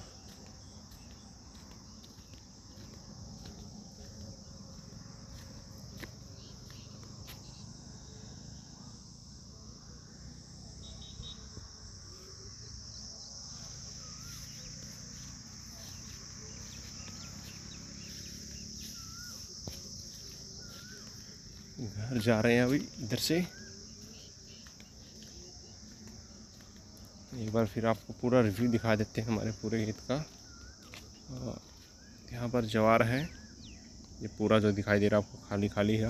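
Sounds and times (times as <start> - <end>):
insects trilling: 0.0 - 36.0
faint bird chirps: 6.2 - 8.5, 12.2 - 22.0, 30.3 - 32.5.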